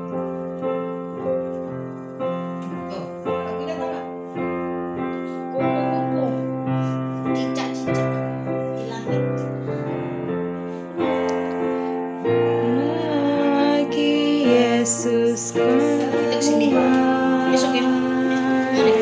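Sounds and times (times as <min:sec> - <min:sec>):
digital piano chords: 0:00.0 - 0:19.0
woman singing: 0:12.4 - 0:19.0.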